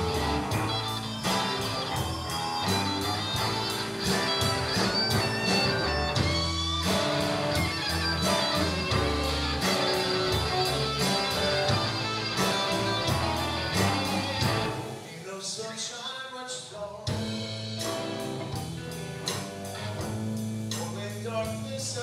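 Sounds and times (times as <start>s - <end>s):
electric bass: 0.0s - 15.1s, 17.1s - 22.0s
electric guitars: 0.0s - 15.3s, 17.1s - 22.0s
drum kit: 0.0s - 15.9s, 17.0s - 22.0s.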